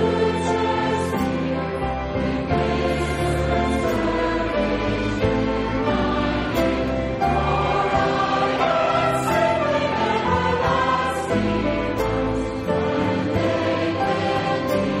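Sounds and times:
choir singing sacred music: 0.0s - 15.0s.

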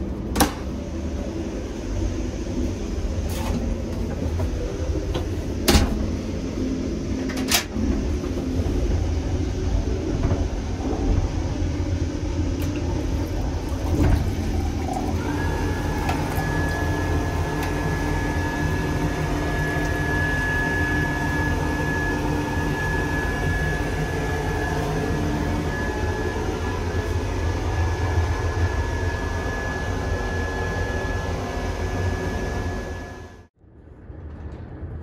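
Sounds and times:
train rumble: 0.0s - 22.0s
hand dryer whining: 0.0s - 33.5s.

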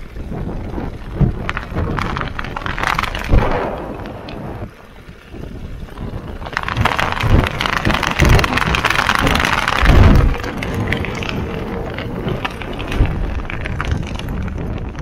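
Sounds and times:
tyre rolling on wet gravel: 0.0s - 15.0s
wind buffeting microphone: 0.0s - 15.0s.

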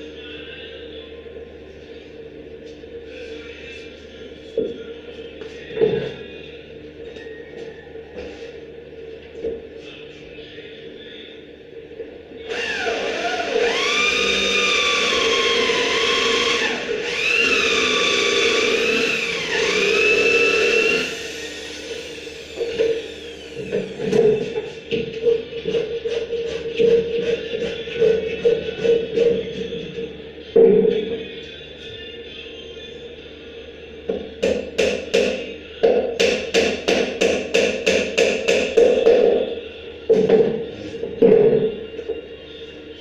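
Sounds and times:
power drill drilling into wood: 12.5s - 22.6s
hammer striking wood: 34.4s - 39.2s.

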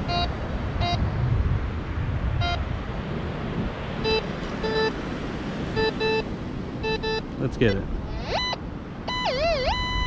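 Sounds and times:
metal detector beeps: 0.0s - 1.0s, 2.4s - 2.6s, 4.0s - 5.0s, 5.8s - 10.0s
wind and surf rush: 0.0s - 10.0s.

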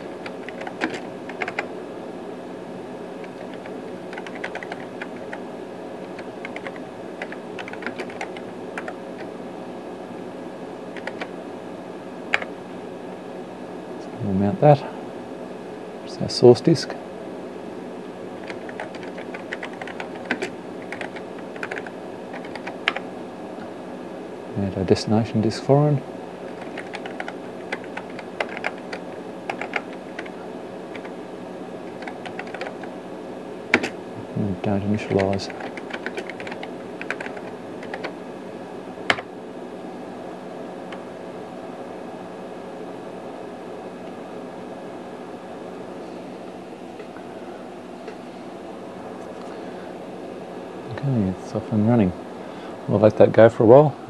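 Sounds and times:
keyboard typing: 0.0s - 1.7s, 3.2s - 9.3s, 10.9s - 11.4s, 12.3s - 12.6s, 18.4s - 23.1s, 26.4s - 31.2s, 31.8s - 32.9s, 33.7s - 34.0s, 35.0s - 38.2s, 39.1s - 39.3s
background hum: 0.0s - 54.0s.

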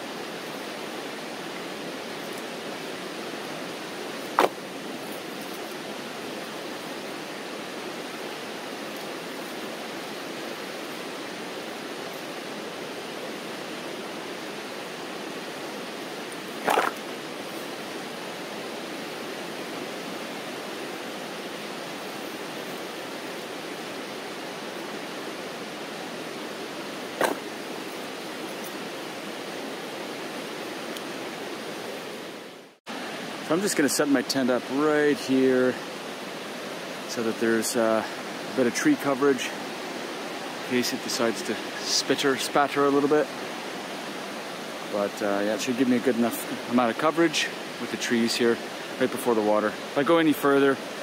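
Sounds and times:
fast-flowing river rushing: 0.0s - 51.0s
firewood bags thudding on dirt: 4.3s - 4.6s.

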